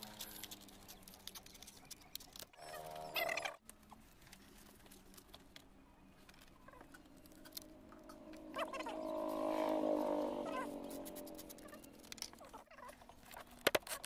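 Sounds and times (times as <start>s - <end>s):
metal snips cutting sandpaper: 10.8s - 12.4s.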